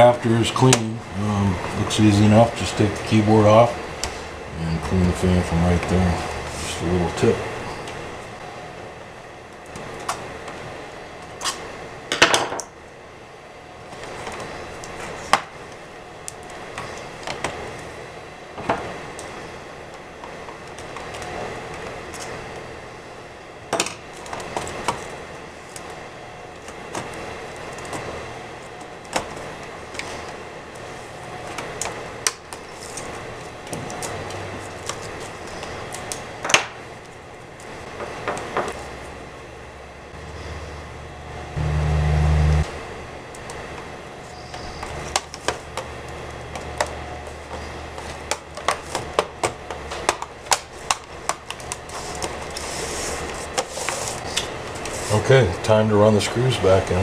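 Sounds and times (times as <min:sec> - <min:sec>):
low rumble: 0:40.2 - 0:42.7.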